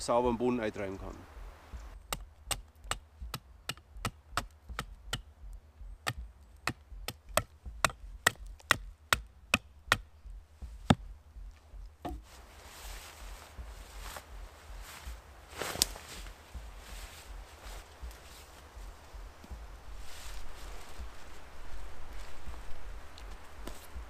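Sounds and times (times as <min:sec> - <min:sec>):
hatchet chopping wood: 0:02.0 - 0:05.3, 0:06.0 - 0:11.2, 0:12.0 - 0:12.2
tarp rustling: 0:12.2 - 0:19.1, 0:19.9 - 0:22.7.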